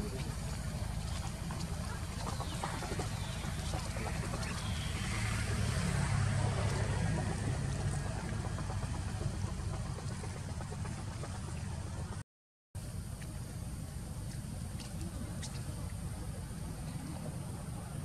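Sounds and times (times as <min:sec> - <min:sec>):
motor engine drone: 0:00.0 - 0:12.2.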